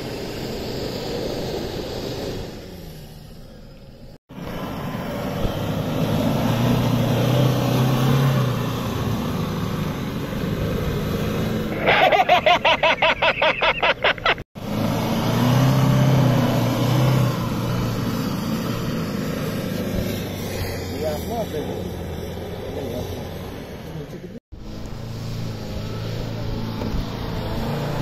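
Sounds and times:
car engine working under load: 21.0 - 28.0.

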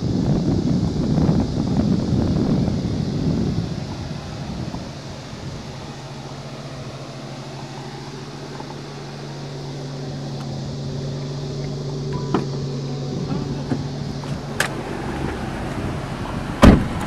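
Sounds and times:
wind on microphone: 0.0 - 11.6
car engine idling: 0.0 - 17.0.

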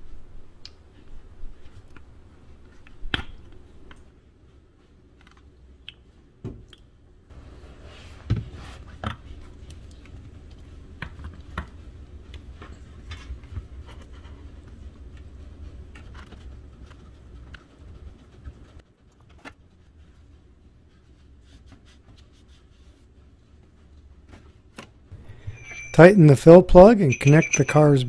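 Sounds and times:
low steady hum: 25.1 - 28.0.

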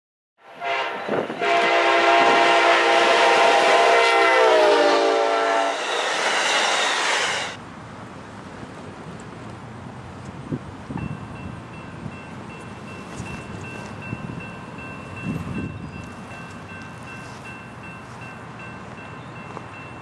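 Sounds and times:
locomotive air horn chord: 0.4 - 6.2
train rolling past: 0.4 - 20.0.

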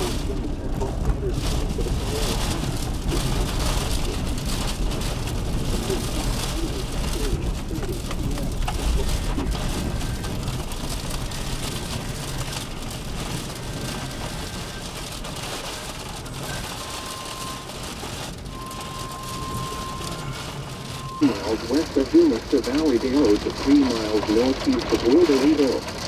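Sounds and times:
rain against a moving car: 0.0 - 26.0
road and wind rumble: 0.0 - 26.0
faint high tone: 18.5 - 21.4.

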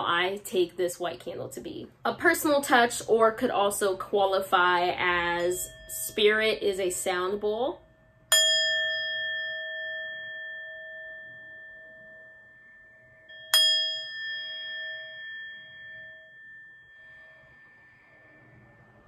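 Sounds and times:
metal singing bowl ringing: 5.0 - 19.0.

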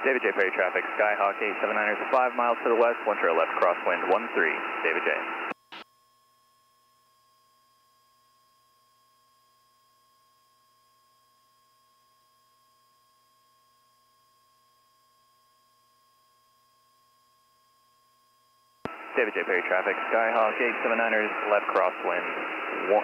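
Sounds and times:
faint hum with thin high tone: 5.5 - 19.3.

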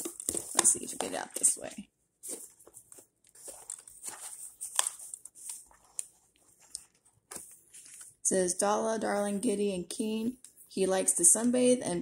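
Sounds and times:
cardboard box rustling and tapping: 0.0 - 4.8.

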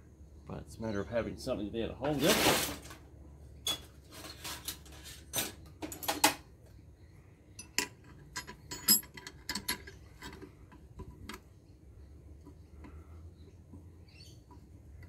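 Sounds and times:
metal tools clinking: 7.6 - 10.5.

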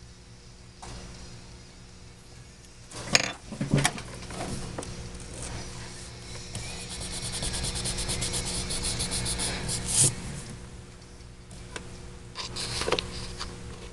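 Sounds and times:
eraser rubbing on paper: 6.6 - 10.1.

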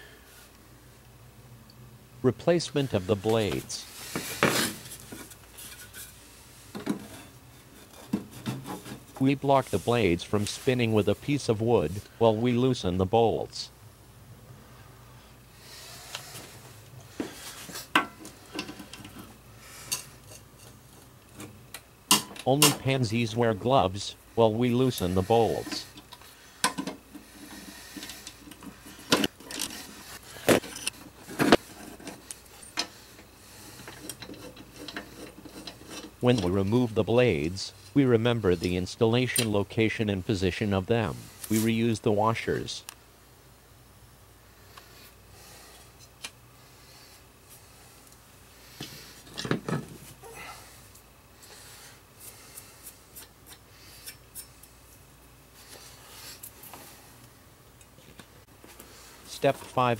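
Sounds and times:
metal parts clicking and rubbing: 24.9 - 36.5.

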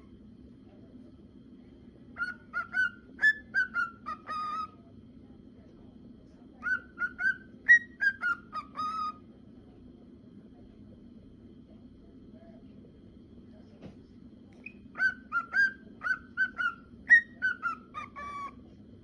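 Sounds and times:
cockatiel whistling: 2.1 - 4.8, 6.6 - 9.2, 14.6 - 18.6.

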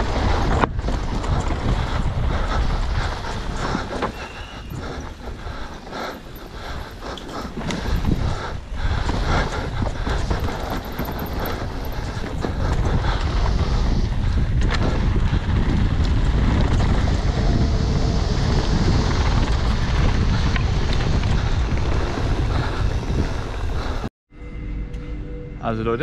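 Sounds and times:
tyres on dirt: 0.0 - 24.0
wind on microphone: 0.0 - 24.1
bike knocks and rattles: 3.5 - 13.2.

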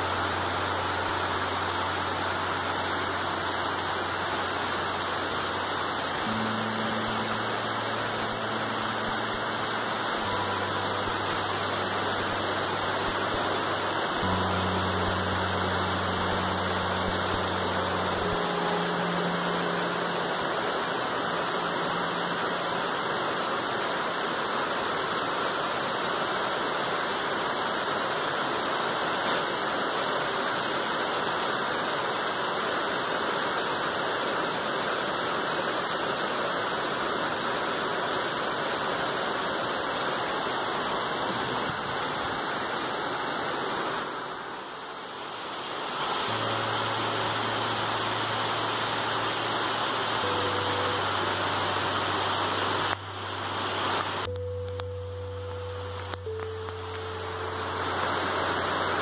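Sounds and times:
low hum: 0.0 - 24.4, 46.1 - 59.0
heavy rain on leaves: 0.0 - 59.0.

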